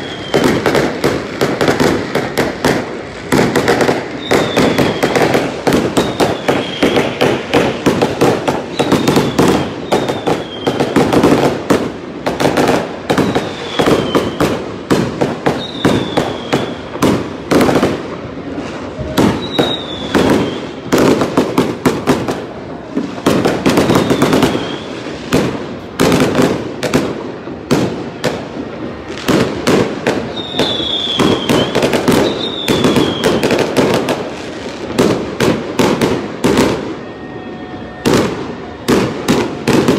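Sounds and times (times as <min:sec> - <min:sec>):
falling whistles: 0:00.0 - 0:00.6, 0:04.1 - 0:07.2, 0:08.6 - 0:11.0, 0:13.1 - 0:14.5, 0:15.5 - 0:16.9, 0:19.3 - 0:20.9, 0:23.8 - 0:25.1, 0:30.3 - 0:33.5
fireworks bangs and crackles: 0:00.0 - 0:39.9.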